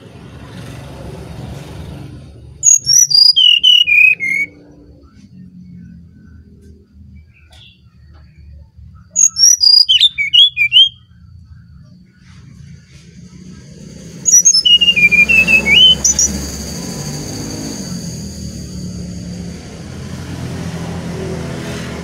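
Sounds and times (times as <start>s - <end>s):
bird whistling flute-like song: 2.6s - 4.8s, 9.0s - 11.2s, 14.2s - 18.8s.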